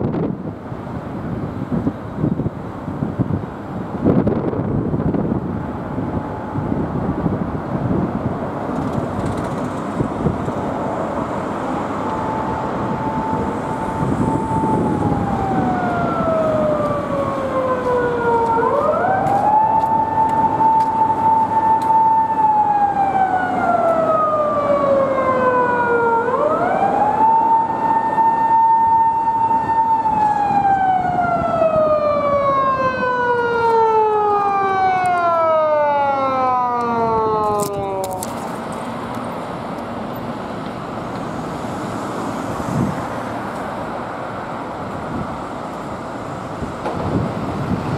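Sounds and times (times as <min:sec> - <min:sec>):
road traffic noise: 0:00.0 - 0:47.9
police siren wailing: 0:10.0 - 0:38.6.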